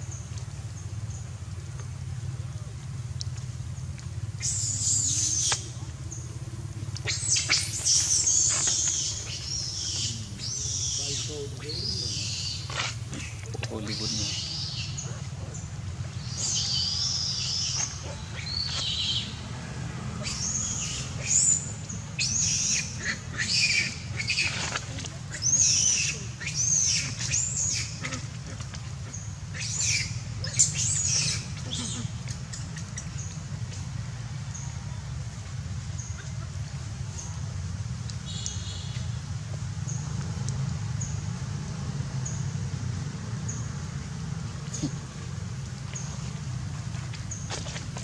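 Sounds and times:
baby monkey screaming: 0:04.4 - 0:05.6, 0:07.0 - 0:12.6, 0:20.2 - 0:21.6, 0:22.2 - 0:24.7, 0:25.3 - 0:28.3, 0:29.5 - 0:32.6.

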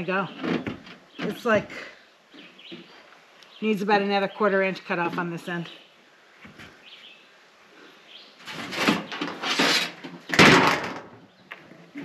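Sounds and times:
wooden board scraping: 0:08.4 - 0:11.1.

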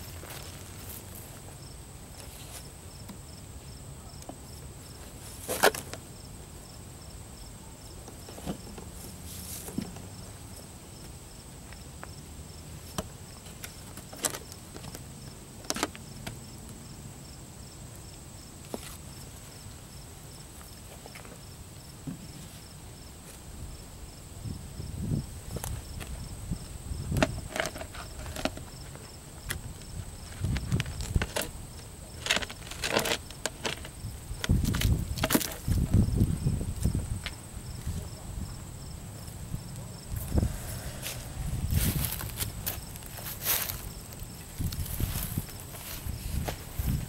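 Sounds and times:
insects chirping: 0:00.0 - 0:47.0
footsteps: 0:40.1 - 0:47.0.

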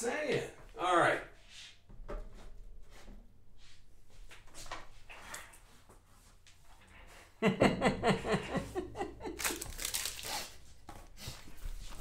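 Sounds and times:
person chuckling: 0:07.4 - 0:10.4
plastic wrap crinkling and tearing: 0:09.3 - 0:10.6.

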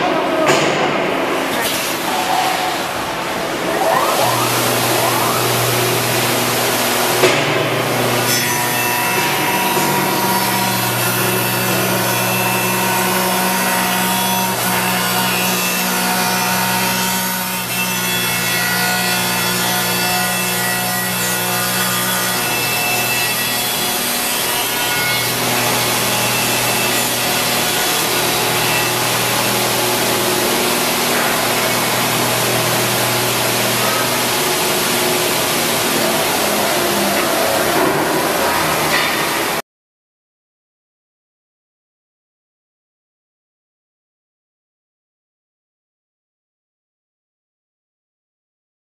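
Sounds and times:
motor hum: 0:02.8 - 0:08.3.

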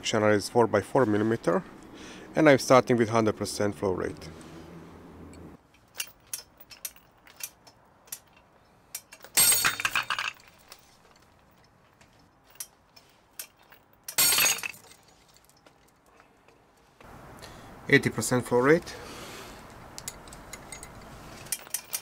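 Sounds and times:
metal hooks and chain clattering: 0:05.6 - 0:16.6, 0:20.0 - 0:22.0.

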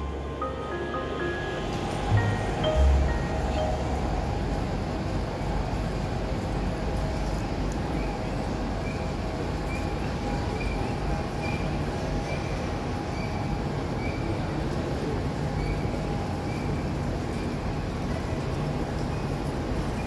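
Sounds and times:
crowd hubbub: 0:00.0 - 0:05.2.

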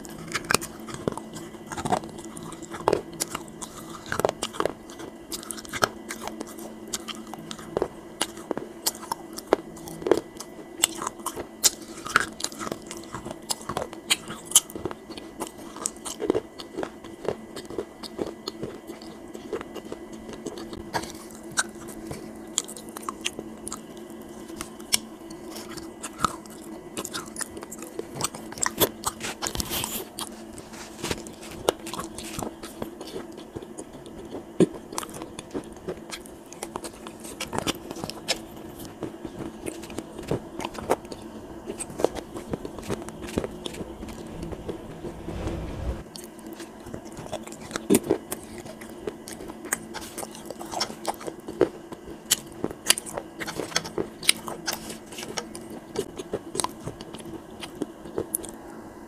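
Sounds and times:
crunchy chewing: 0:00.0 - 0:45.9, 0:46.5 - 0:58.6
faint steady hum: 0:00.0 - 0:59.0.

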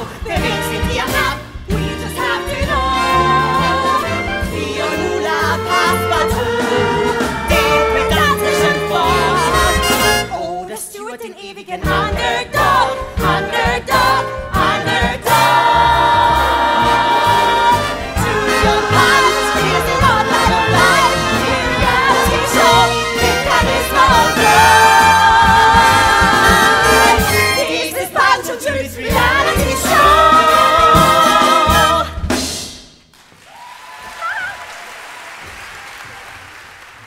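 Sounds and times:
ensemble singing with orchestra: 0:00.0 - 0:32.5.

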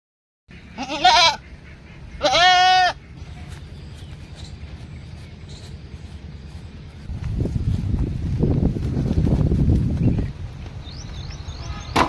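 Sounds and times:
goat bleating: 0:00.6 - 0:03.5.

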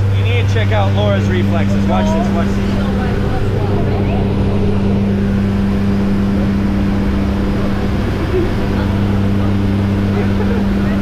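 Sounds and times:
plane engine and propeller droning: 0:00.0 - 0:11.0.

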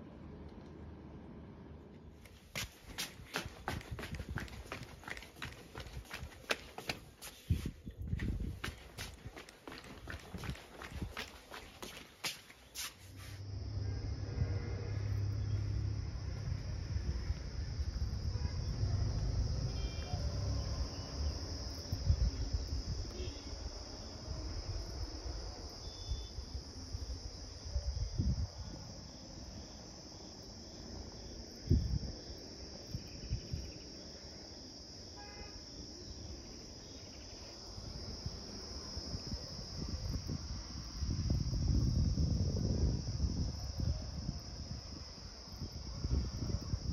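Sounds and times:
insects chirring: 0:02.3 - 0:46.9
low rumble on microphone: 0:13.2 - 0:21.4.

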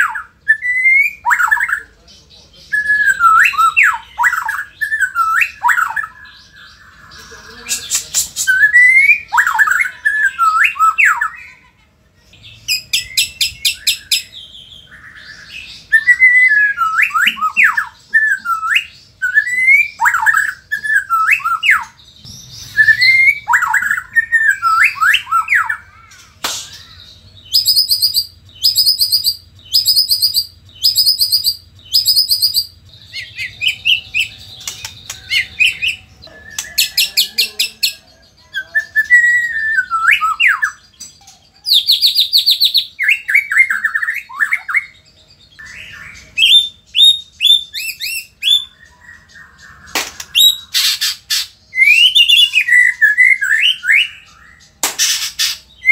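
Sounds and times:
bird singing whistled phrases: 0:00.0 - 0:01.8, 0:02.7 - 0:06.8, 0:07.7 - 0:11.6, 0:12.7 - 0:40.9, 0:41.6 - 0:55.9
bird ticking chatter: 0:26.1 - 0:38.0.

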